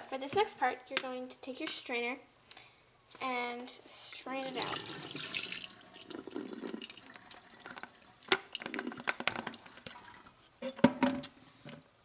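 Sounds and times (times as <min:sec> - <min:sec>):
water dripping: 0:04.1 - 0:11.4
water pouring and splashing: 0:04.4 - 0:10.6
bucket knocking in sink: 0:10.8 - 0:11.2.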